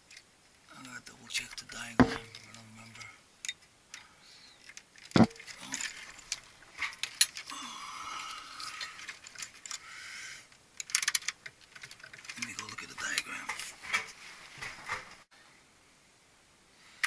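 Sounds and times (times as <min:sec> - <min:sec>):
light clicks and rattles of wires: 0:00.0 - 0:15.2.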